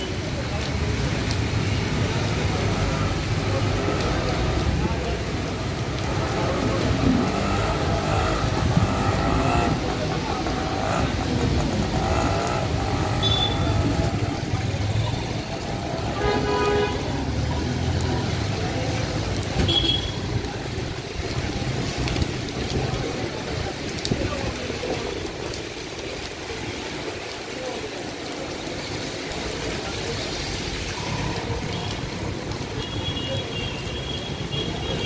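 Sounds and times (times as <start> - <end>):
heavy rain hissing on road: 0.0 - 35.0
traffic passing: 0.0 - 35.0
vehicle horn: 13.2 - 13.8, 16.2 - 17.0.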